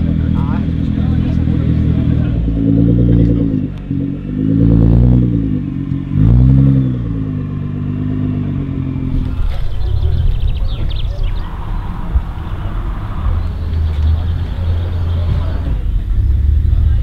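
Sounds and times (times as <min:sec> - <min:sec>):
car engine revving and idling: 0:00.0 - 0:17.0.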